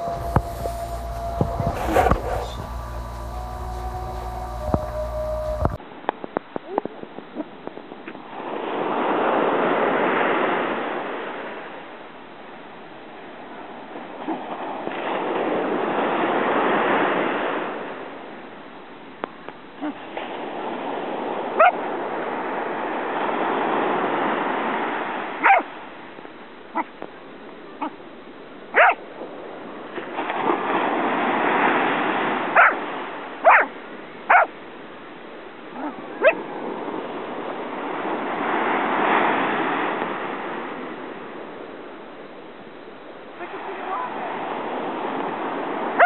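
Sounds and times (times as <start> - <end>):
surf washing in and out: 0.0 - 46.0
dog barking and yipping: 1.6 - 2.8, 21.6 - 21.8, 25.4 - 25.7, 28.8 - 29.0, 32.6 - 32.8, 33.4 - 33.7, 34.3 - 34.5, 35.8 - 36.4.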